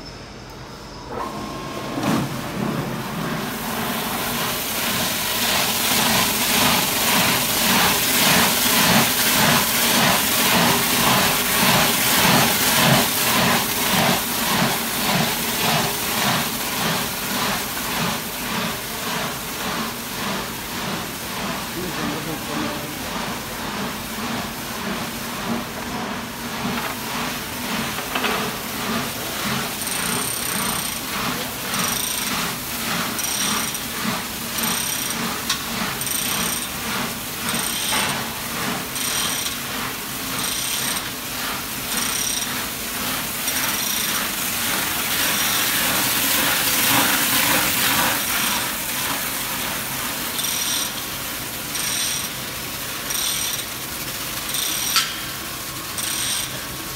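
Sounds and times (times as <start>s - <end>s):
hoist chain rattling and clicking: 56.0s - 56.5s.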